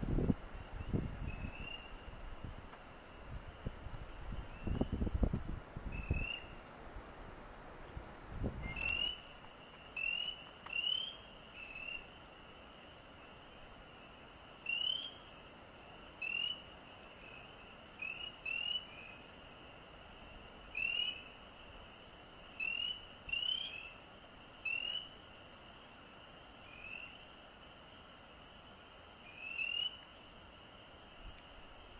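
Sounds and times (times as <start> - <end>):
frogs whistled calls: 0.7 - 2.2, 4.2 - 5.1, 5.9 - 6.6, 8.6 - 15.4, 16.1 - 25.9, 26.5 - 27.4, 29.2 - 30.2
distant frog chorus: 5.9 - 6.7, 8.6 - 31.9.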